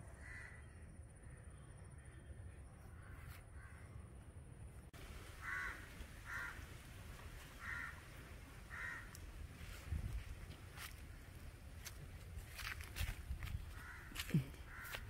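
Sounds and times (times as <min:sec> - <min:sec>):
crow cawing: 0:00.2 - 0:00.8, 0:02.9 - 0:04.0, 0:05.3 - 0:06.7, 0:07.5 - 0:09.2, 0:13.7 - 0:15.0.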